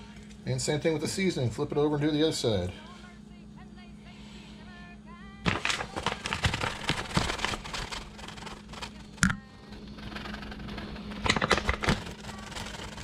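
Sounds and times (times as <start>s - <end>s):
steady low hum: 0.0s - 13.0s
flour sifter shaken and tapped: 5.5s - 9.2s.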